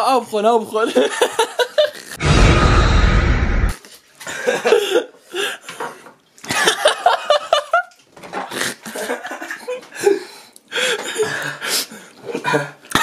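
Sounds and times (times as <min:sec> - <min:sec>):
loud rushing noise: 0:02.2 - 0:03.8
pained vocal noises: 0:02.2 - 0:03.8
person coughing and spluttering: 0:12.3 - 0:13.0.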